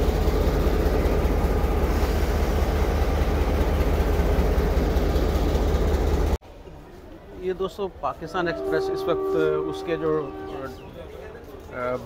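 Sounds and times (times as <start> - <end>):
train diesel engine idling: 0.0 - 6.4.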